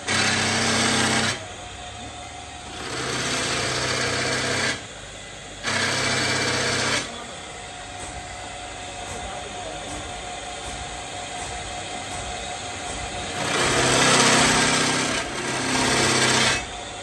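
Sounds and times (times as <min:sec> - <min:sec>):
power tool motor hum: 0:00.0 - 0:01.5, 0:02.6 - 0:05.0, 0:05.6 - 0:07.2, 0:13.1 - 0:17.0.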